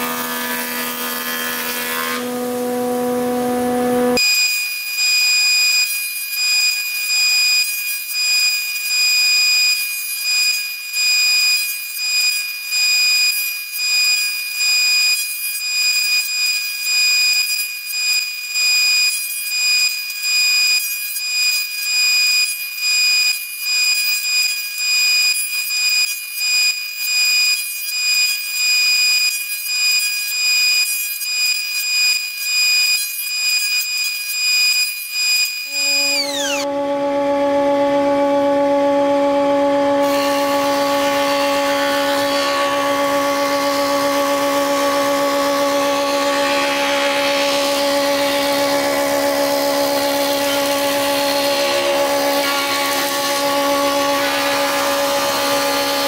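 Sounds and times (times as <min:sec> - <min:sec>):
wood strips being cut: 0:00.0 - 0:06.6, 0:29.4 - 0:56.0
jointer cutterhead whining: 0:00.0 - 0:10.3, 0:33.6 - 0:56.0.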